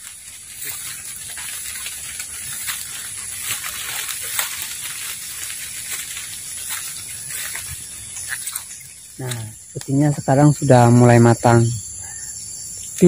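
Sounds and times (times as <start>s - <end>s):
footsteps through grass: 0.0s - 11.3s
steady high hiss: 0.0s - 13.0s.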